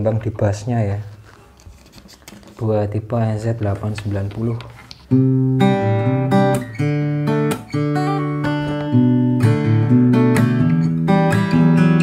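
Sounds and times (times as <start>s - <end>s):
acoustic guitar chords: 5.1s - 12.0s.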